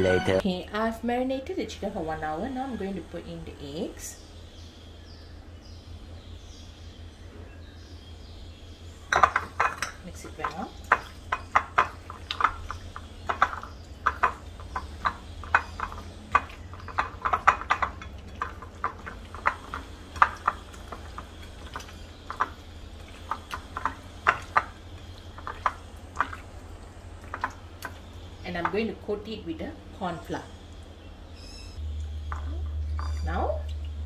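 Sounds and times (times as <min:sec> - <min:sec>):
low steady hum: 0:00.0 - 0:34.0
wet squelches of hand mixing: 0:10.4 - 0:28.4.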